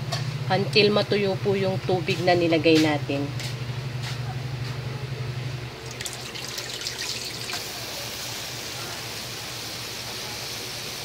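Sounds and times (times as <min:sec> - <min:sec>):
meat cooking in a wok: 0:05.6 - 0:11.0
bubbling hiss: 0:05.8 - 0:11.0.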